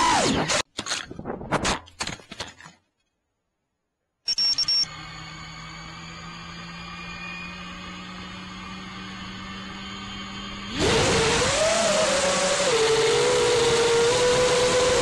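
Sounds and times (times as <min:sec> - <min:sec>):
high beep: 0:04.3 - 0:04.9.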